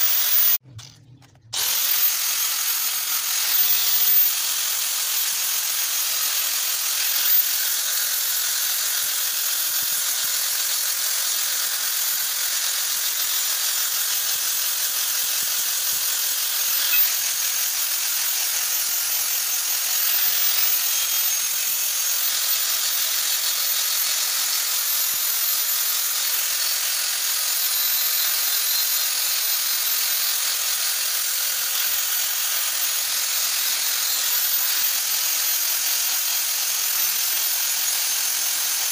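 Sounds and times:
angle grinder grinding metal: 0.0 - 38.9.

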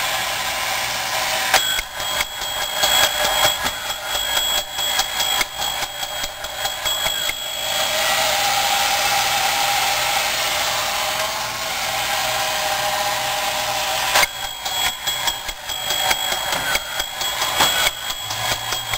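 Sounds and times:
small electric motor whirring: 0.0 - 18.9
sharp click: 1.5 - 7.5, 14.1 - 18.9
toy drive rattling clicks: 1.5 - 7.6, 14.1 - 18.9.

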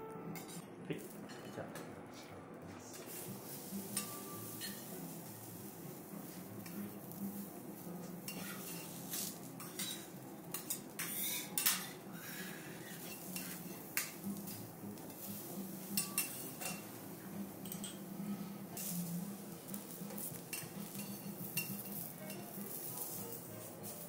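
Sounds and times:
metal utensils scraping griddle: 2.9 - 7.5, 8.2 - 17.0, 17.6 - 24.0.

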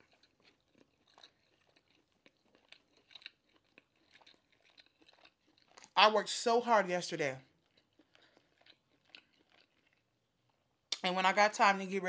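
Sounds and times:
person chewing food: 0.0 - 6.0, 7.4 - 11.0.

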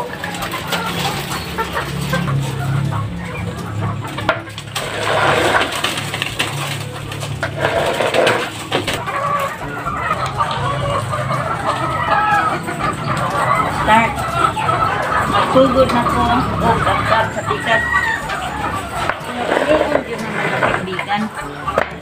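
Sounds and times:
hens clucking: 0.0 - 22.0
metal bar scraping concrete: 4.3 - 9.1, 19.0 - 21.2.

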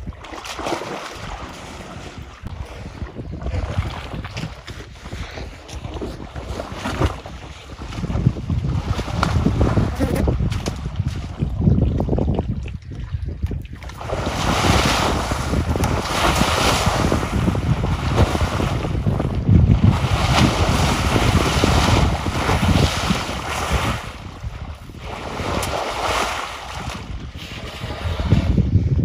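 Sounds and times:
elephant splashing water: 0.0 - 2.3, 13.6 - 28.6
wind rumble on microphone: 0.0 - 29.0.

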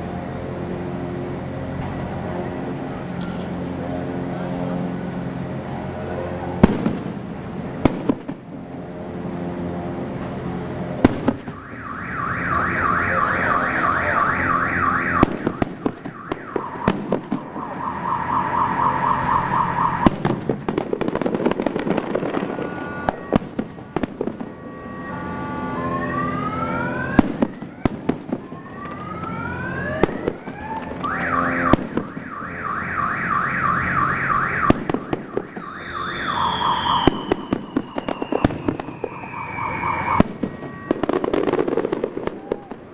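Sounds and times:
fireworks bursting with bangs: 4.7 - 42.9
rising firework whistles: 11.0 - 42.9
warbling firework shrieks: 11.2 - 20.1, 21.4 - 27.2, 35.6 - 42.8.

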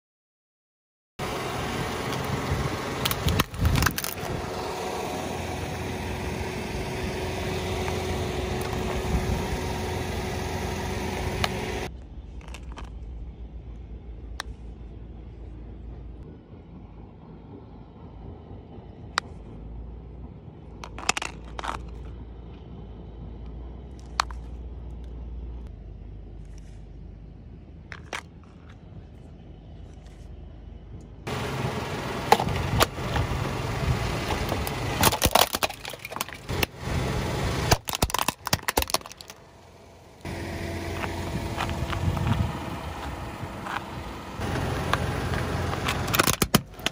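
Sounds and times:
car engine idling: 1.2 - 46.9
tyre crushing plastic: 34.3 - 36.7, 37.7 - 39.4, 44.4 - 46.9.

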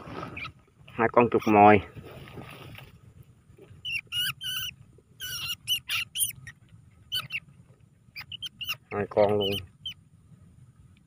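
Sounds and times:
rats squeaking: 0.2 - 1.7, 3.7 - 10.0.

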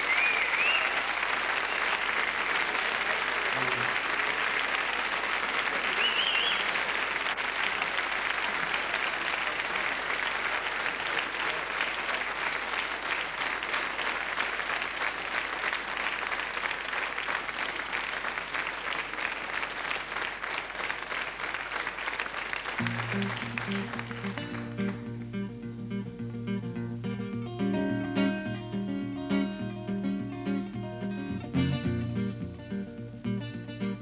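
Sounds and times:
audience applauding: 0.0 - 25.4.

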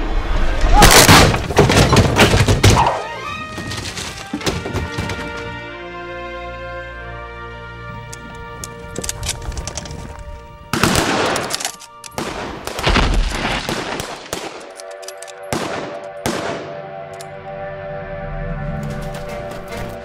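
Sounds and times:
film score music: 0.0 - 20.0.

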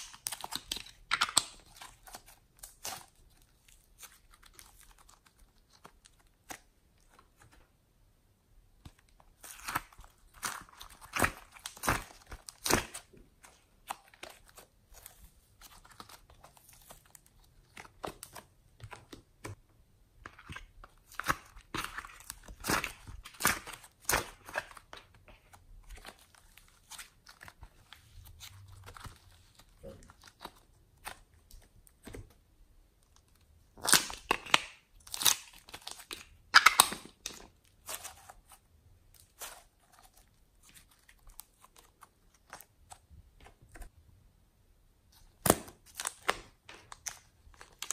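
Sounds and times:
slime crackling and popping: 9.0 - 14.6, 33.7 - 38.6.

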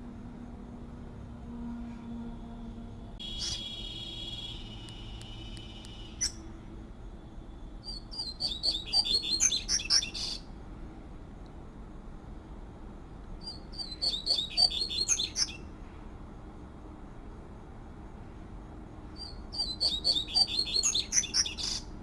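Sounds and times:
bird singing fluted song: 3.2 - 6.5, 7.8 - 10.5, 13.4 - 15.7, 19.1 - 21.9
steady high tone: 3.2 - 6.8.

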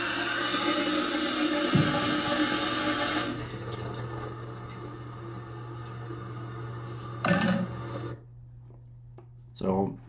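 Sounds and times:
loud knock: 1.6 - 2.4.

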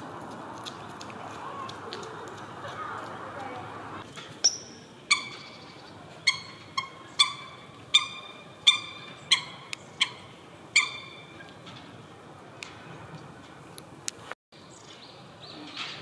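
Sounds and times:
coot calling: 5.1 - 11.5.

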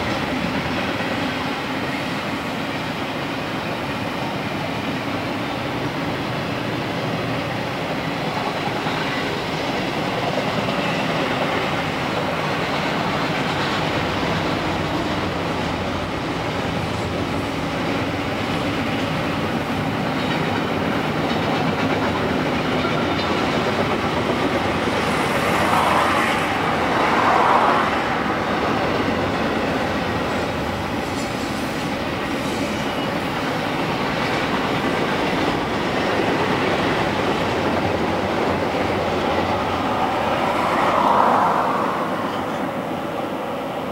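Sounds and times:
train wheels clattering over rail joints: 8.2 - 27.4.

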